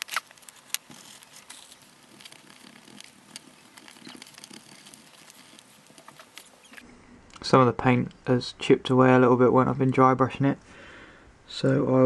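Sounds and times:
stiff paintbrush scratching: 0.0 - 6.8.

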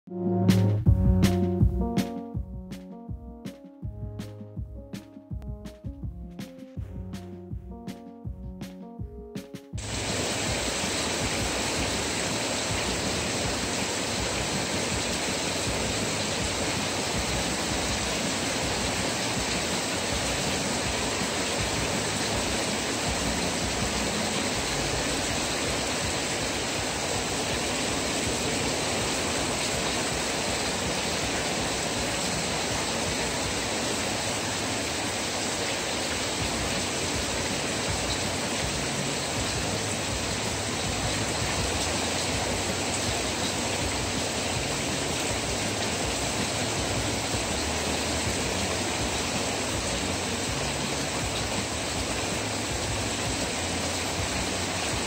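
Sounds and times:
heavy rain on porch roof: 9.8 - 55.0.

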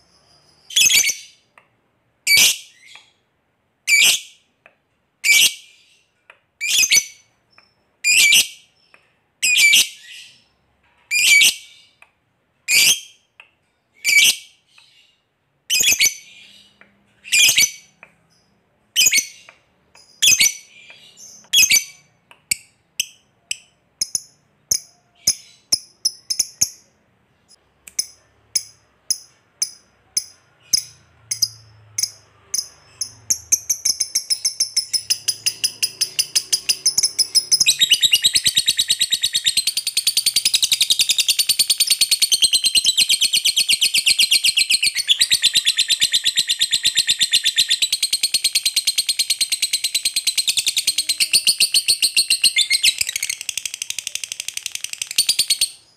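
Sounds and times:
lovebird ticking calls: 22.5 - 26.9, 27.9 - 55.7.

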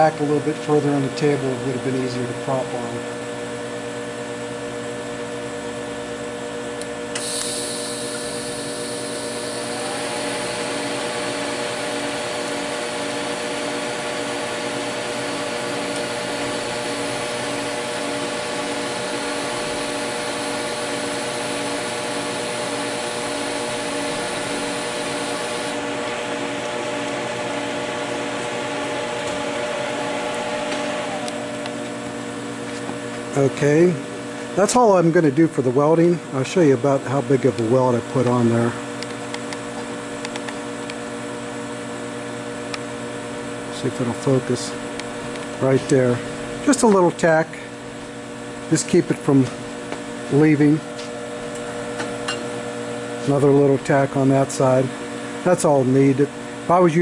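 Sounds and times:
welding machine humming: 6.8 - 34.8.

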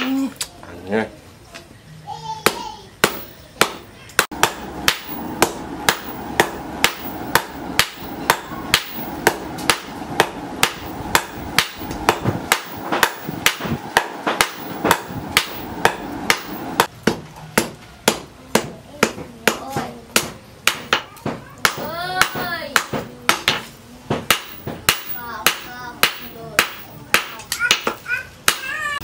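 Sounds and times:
hammer striking metal on anvil: 2.4 - 19.6, 24.3 - 28.7.

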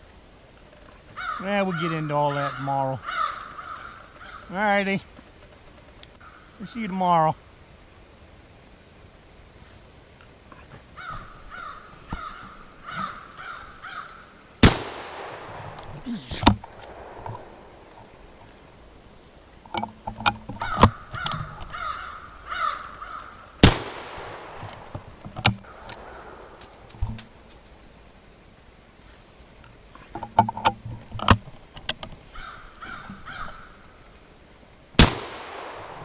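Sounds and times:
bird cawing: 0.7 - 4.6, 5.2 - 6.6, 10.9 - 19.0, 20.5 - 27.5, 32.3 - 34.2
rifle shot echoing: 14.6 - 18.3, 23.6 - 26.9, 35.0 - 36.0
clicks and knocks: 19.7 - 21.8, 24.5 - 27.3, 30.2 - 32.2.

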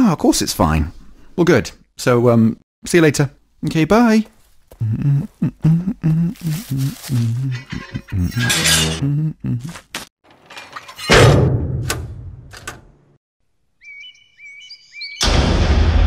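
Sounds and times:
metal hatch slamming with clang: 10.4 - 12.9
bird chirping: 13.7 - 15.2.

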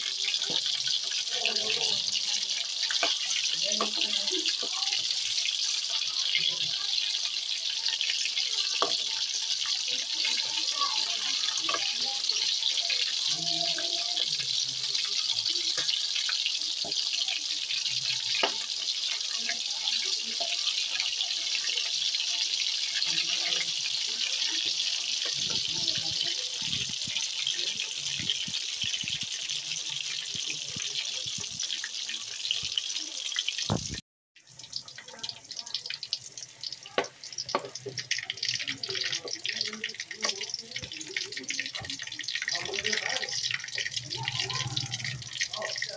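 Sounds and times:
chicken sizzling in hot oil: 0.0 - 45.9
oil popping and clicking: 35.8 - 45.9.

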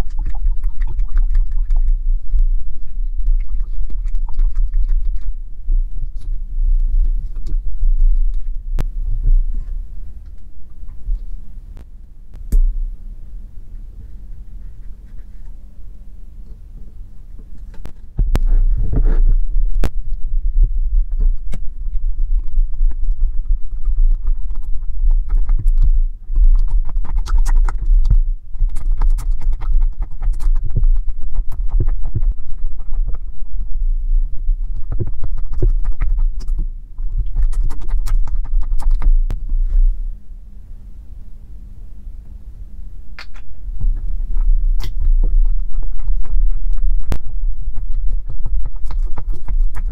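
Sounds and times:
heavy low rumble: 0.0 - 49.9.

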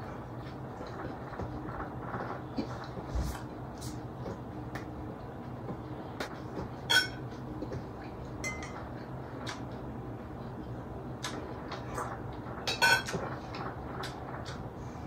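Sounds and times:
tableware clinking: 6.9 - 7.2, 8.4 - 8.8, 12.7 - 13.2.

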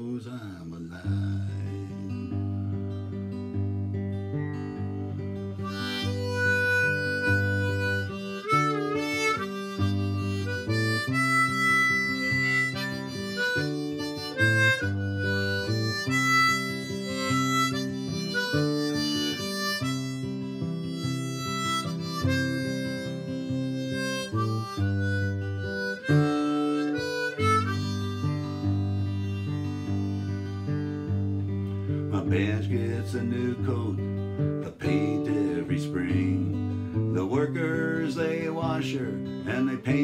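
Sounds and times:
strummed acoustic guitar: 0.0 - 40.0
harmonica blues solo: 4.5 - 40.0.

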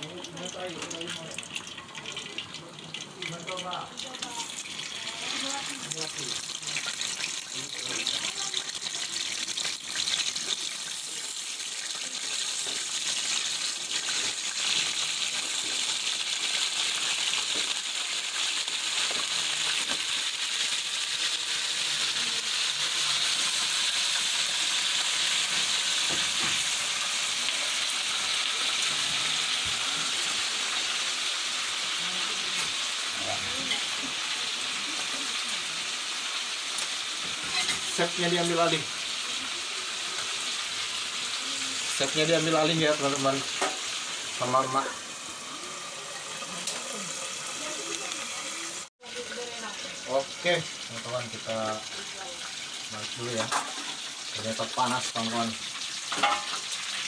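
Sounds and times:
chicken frying in oil: 0.0 - 57.0.

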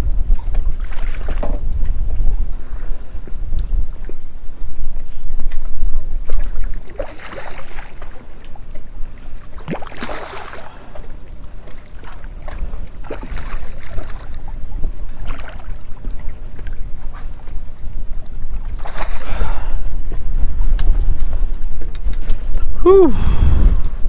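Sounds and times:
low wind rumble on microphone: 0.0 - 24.0
fish splashing in water: 6.3 - 8.2, 9.4 - 14.4, 15.2 - 16.3, 18.8 - 19.4.

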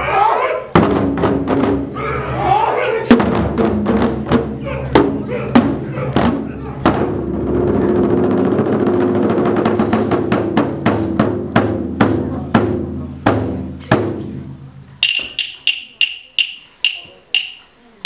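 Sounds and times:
rumbling drum roll: 3.1 - 14.4
heavy drum strokes: 3.1 - 17.8
ringing wooden clicks: 15.0 - 17.7.

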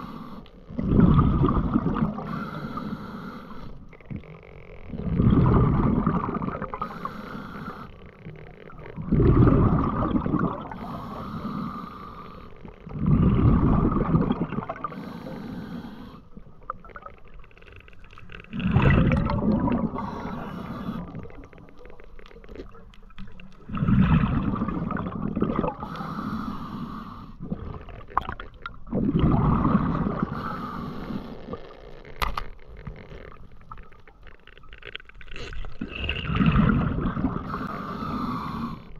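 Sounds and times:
diver exhaling bubbles: 0.8 - 2.6, 4.9 - 7.8, 8.9 - 12.0, 12.8 - 15.7, 18.5 - 21.6, 23.6 - 31.8, 35.5 - 38.8
regulator inhalation hiss: 6.8 - 7.9, 10.8 - 12.5, 14.9 - 16.3, 25.8 - 27.4, 30.3 - 31.4.

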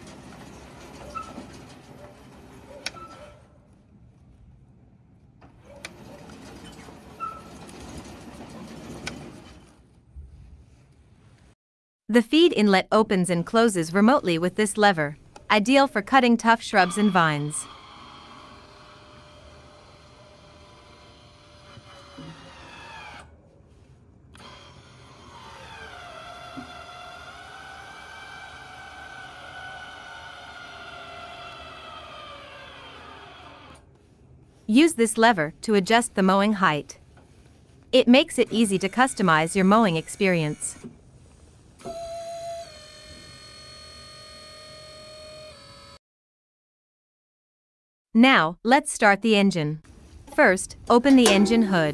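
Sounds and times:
electric drive motors running: 16.7 - 23.3, 24.3 - 33.8, 38.4 - 41.0, 41.8 - 46.0
actuator motor whine: 16.8 - 23.3, 41.8 - 46.0.

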